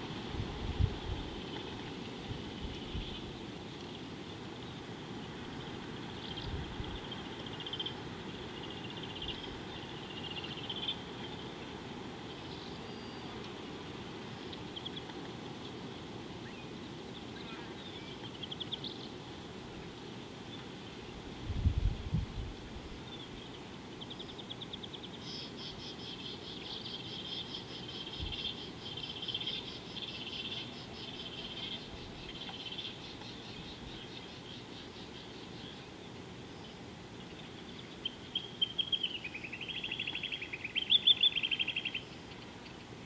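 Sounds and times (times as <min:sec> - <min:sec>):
faint wind-like background: 0:00.0 - 0:43.0
bird calling in rapid trills: 0:37.4 - 0:42.8.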